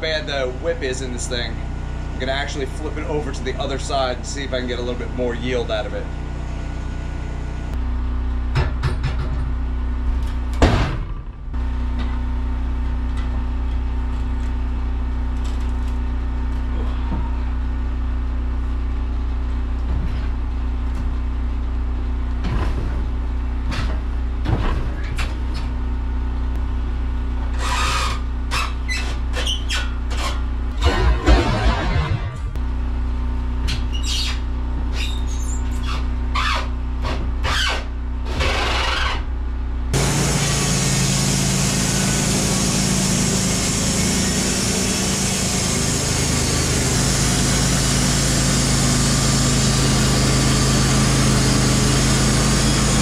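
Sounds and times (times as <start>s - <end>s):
sawmill motor running: 0.0s - 8.4s, 35.9s - 53.0s.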